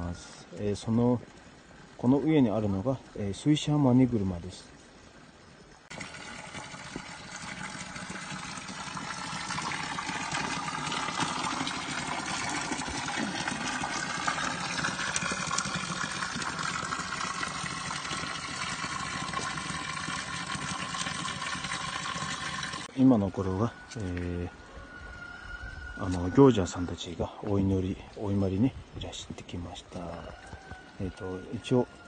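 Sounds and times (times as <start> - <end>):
water pouring and splashing: 5.8 - 22.9.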